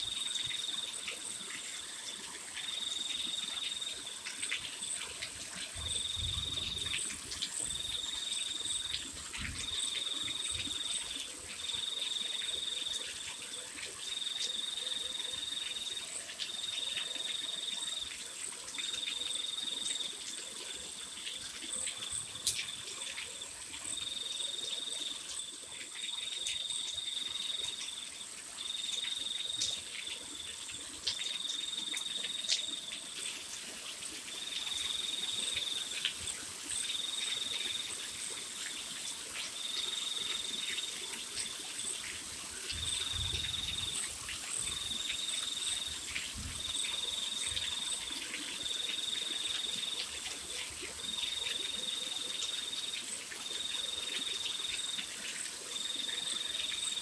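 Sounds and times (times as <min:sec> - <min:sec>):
rain on gravel and paving: 0:00.0 - 0:57.0
cricket trilling: 0:39.4 - 0:57.0.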